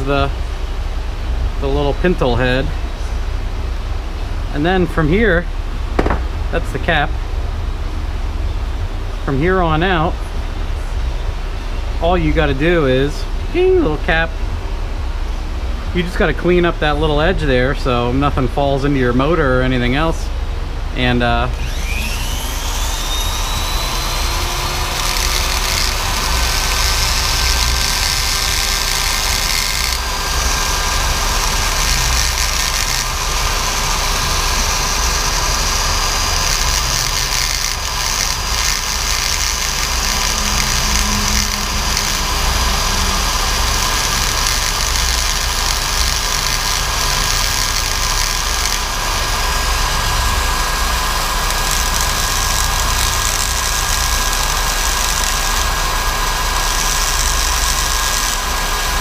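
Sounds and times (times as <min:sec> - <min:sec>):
rotary tool grinding: 0:21.6 - 0:59.0.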